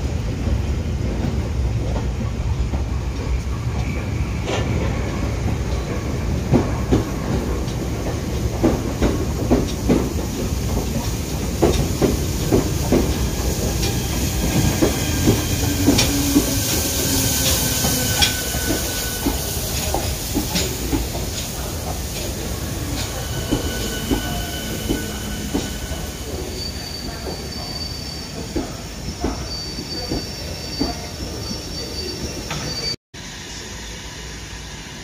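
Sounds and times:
low train rumble: 0.0s - 35.0s
train wheels clicking over rail joints: 1.1s - 27.8s
steam locomotive hiss: 3.1s - 35.0s.

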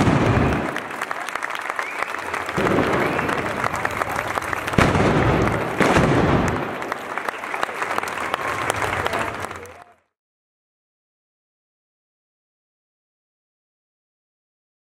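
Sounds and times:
loud bangs: 0.0s - 1.0s, 2.3s - 7.3s
crowd applauding: 0.0s - 10.2s.

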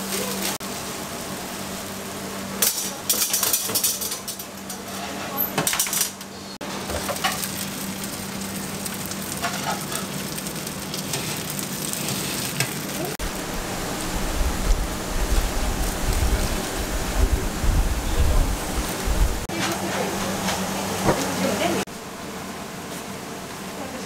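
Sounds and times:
gas range sizzling hiss: 0.0s - 24.0s
low rumble: 13.2s - 19.5s.

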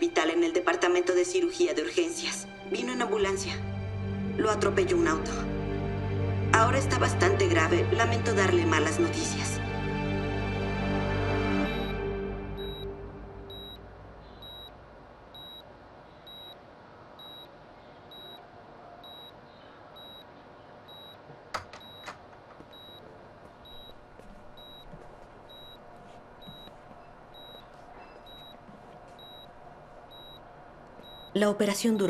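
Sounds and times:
patient monitor beeping: 11.6s - 16.6s, 17.2s - 32.0s.

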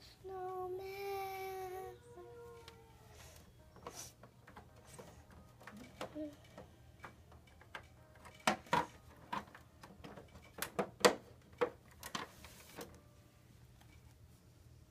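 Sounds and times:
plastic toy knocks and clacks: 3.8s - 12.4s.

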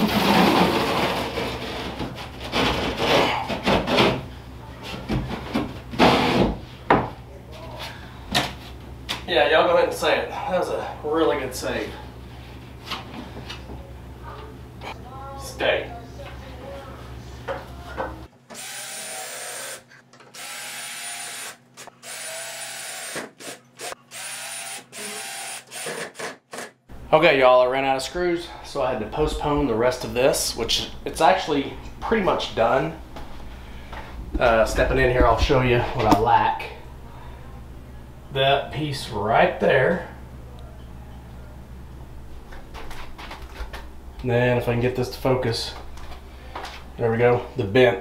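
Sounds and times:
cordless drill driving screws: 18.5s - 26.8s.

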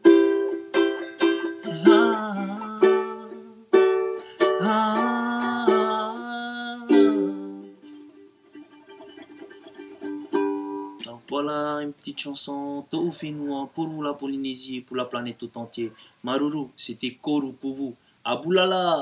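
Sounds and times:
ukulele strumming chords: 0.0s - 11.5s.

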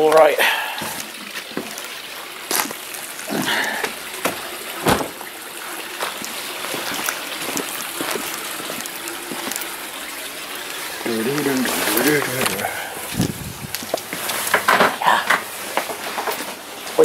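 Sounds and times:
footsteps on wet concrete: 2.5s - 5.2s, 6.0s - 9.7s, 11.3s - 14.6s.

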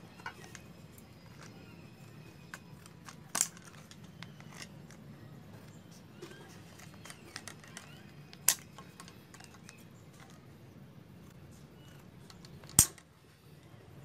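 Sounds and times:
scissors cutting plastic: 0.1s - 5.0s, 5.7s - 10.4s.

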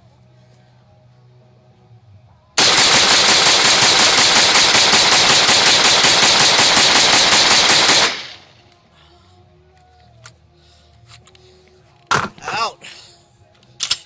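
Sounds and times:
rifle rapid gunshots: 2.6s - 8.5s.

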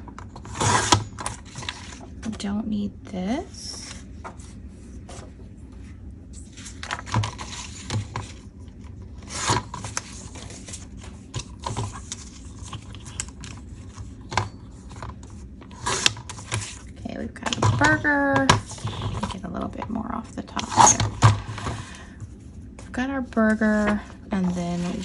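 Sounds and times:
paper rubbing and scraping: 23.7s - 25.0s.

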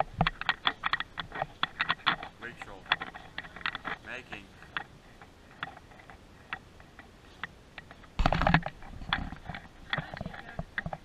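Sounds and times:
rustling thump: 8.2s - 9.6s.

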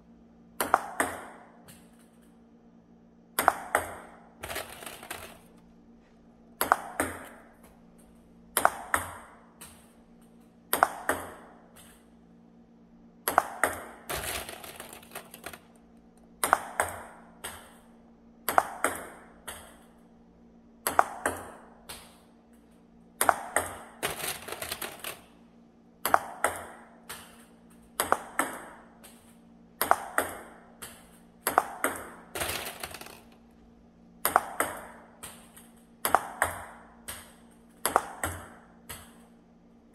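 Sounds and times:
table tennis ball clicks: 3.4s - 5.6s, 6.6s - 7.4s, 8.6s - 12.0s, 13.3s - 17.8s, 18.5s - 19.9s, 23.2s - 25.3s, 26.1s - 33.4s, 34.2s - 39.4s.

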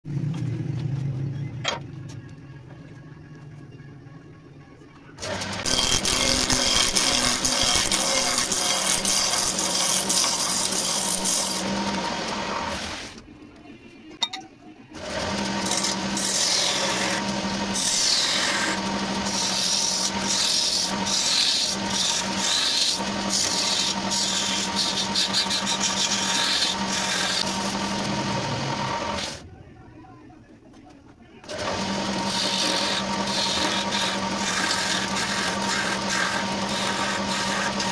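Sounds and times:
turning tool scraping wood: 5.2s - 13.0s, 15.0s - 29.4s, 31.4s - 37.9s
lathe motor hum: 15.0s - 29.4s, 31.4s - 37.9s.

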